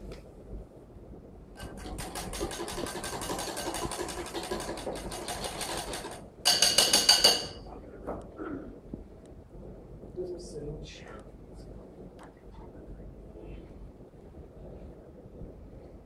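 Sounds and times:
whisk beating batter: 0:01.6 - 0:07.7
whisk clattering against bowl: 0:01.6 - 0:07.7.

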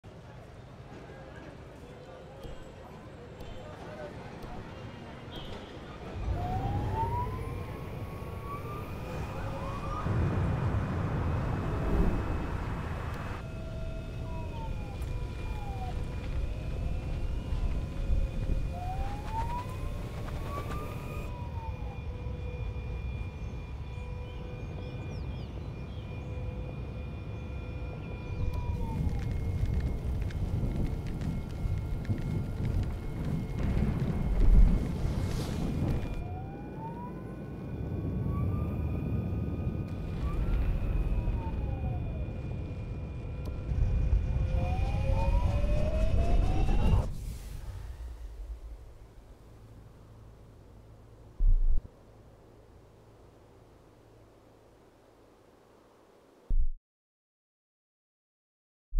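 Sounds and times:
wind and road noise: 0:00.0 - 0:56.8
electric motorcycle motor whine: 0:06.2 - 0:35.1, 0:35.7 - 0:47.1
wind rush: 0:28.7 - 0:49.7, 0:51.4 - 0:51.9.

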